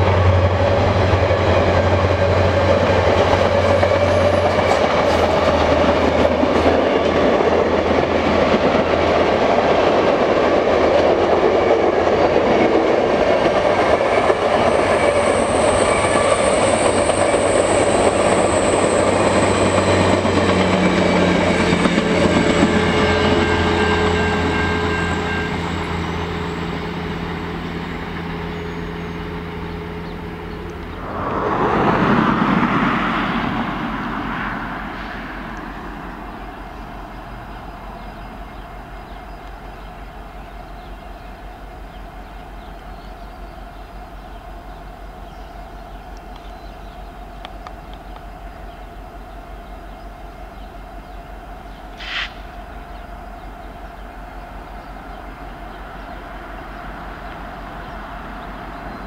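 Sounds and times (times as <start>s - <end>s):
train wheels clattering on rail: 0.0s - 31.0s
loud whoosh: 30.9s - 36.0s.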